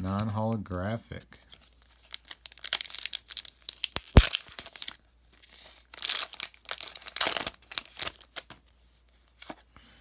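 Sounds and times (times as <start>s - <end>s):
foil wrapper crinkling and tearing: 1.5s - 8.6s.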